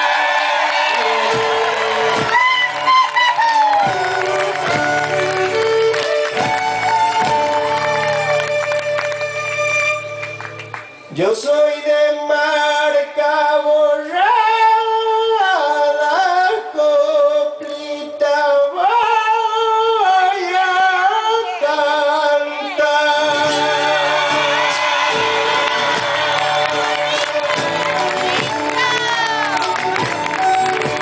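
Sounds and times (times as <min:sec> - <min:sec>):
low instrumental accompaniment: 0:00.9 - 0:11.1, 0:23.3 - 0:31.0.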